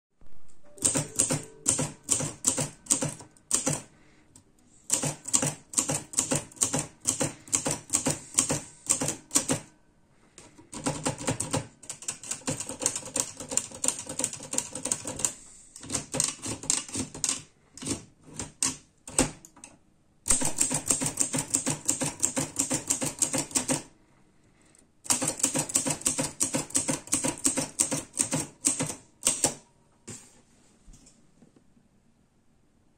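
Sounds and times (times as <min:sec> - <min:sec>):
typewriter key strikes: 0:00.8 - 0:03.8, 0:20.3 - 0:23.7.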